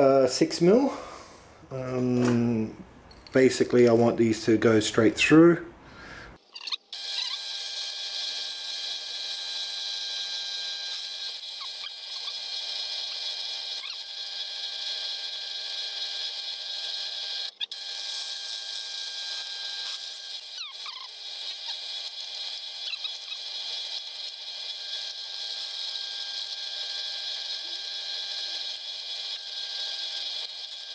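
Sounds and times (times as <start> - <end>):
drill press motor whine: 7.0 - 30.9.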